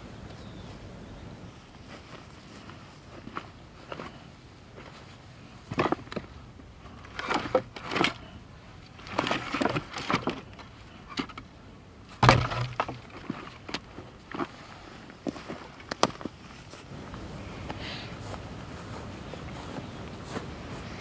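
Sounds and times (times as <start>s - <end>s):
heavy thud: 12.2s - 13.1s
wood knocking against wood: 12.2s - 13.8s
dry branches cracking and snapping: 12.2s - 14.5s, 15.2s - 16.4s.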